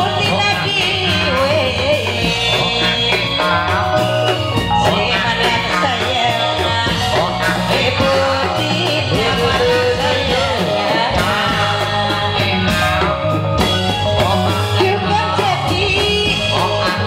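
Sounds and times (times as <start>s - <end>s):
band music with singing: 0.0s - 17.0s.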